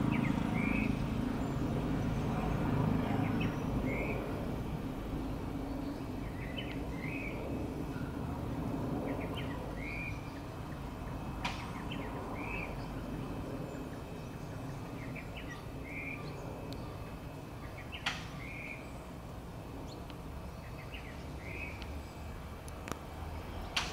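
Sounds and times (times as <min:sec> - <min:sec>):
bird chirping: 0:00.0 - 0:04.2, 0:05.6 - 0:07.4, 0:09.0 - 0:13.0, 0:13.7 - 0:19.2, 0:19.8 - 0:22.5
jet engines rumbling: 0:00.0 - 0:23.9.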